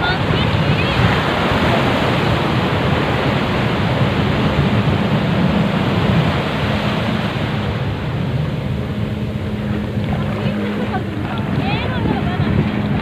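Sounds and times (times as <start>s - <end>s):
small waves breaking on sand: 0.0s - 13.0s.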